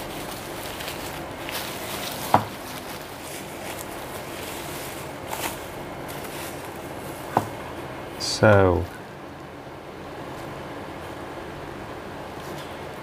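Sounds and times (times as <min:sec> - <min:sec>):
bubble wrap rustling and crinkling: 0:00.0 - 0:07.6.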